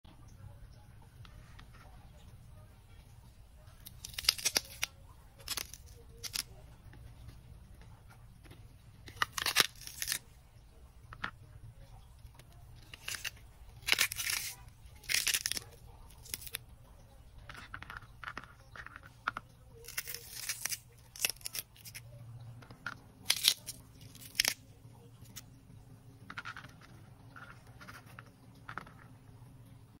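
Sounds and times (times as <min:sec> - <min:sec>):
celery stalks snapping and tearing: 0:03.8 - 0:06.5, 0:09.1 - 0:10.3, 0:12.8 - 0:16.6, 0:19.8 - 0:22.0, 0:23.2 - 0:24.6.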